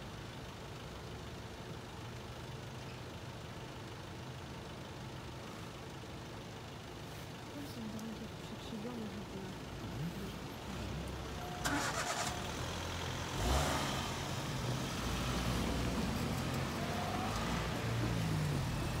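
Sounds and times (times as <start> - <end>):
car engines pulling away: 7.9 - 19.0.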